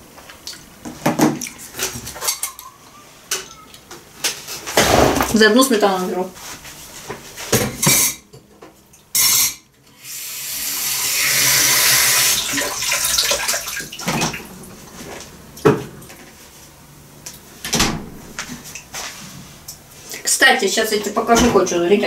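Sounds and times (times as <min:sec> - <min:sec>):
kitchen tap running: 0:10.0 - 0:14.5.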